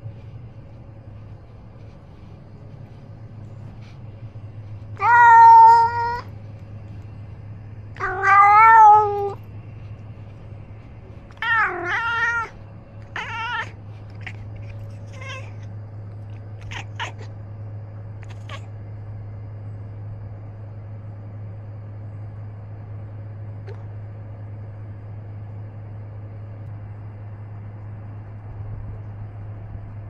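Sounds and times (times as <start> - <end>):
steady low hum: 0.0 - 30.0
cat meowing: 5.0 - 6.3, 8.0 - 9.4, 11.3 - 15.7, 16.6 - 17.4, 18.2 - 18.7.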